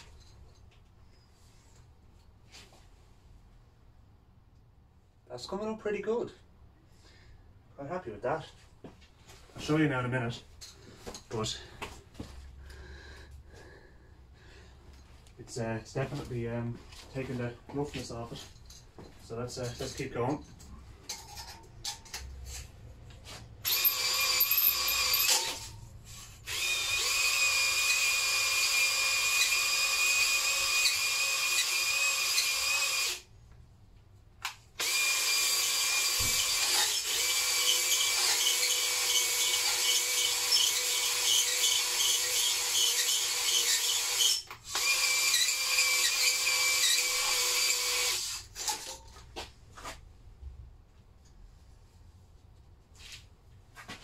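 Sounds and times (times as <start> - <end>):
cordless drill whining: 23.6 - 33.3, 34.8 - 48.9.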